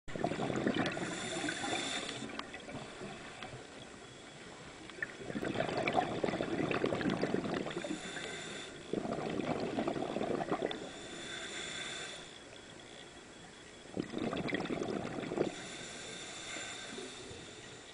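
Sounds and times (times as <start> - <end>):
regulator inhale hiss: 0.9 - 2.4, 7.7 - 9.0, 10.7 - 12.6, 15.3 - 17.9
exhaust bubbles rumbling: 5.2 - 7.9, 8.9 - 10.8, 13.9 - 15.5.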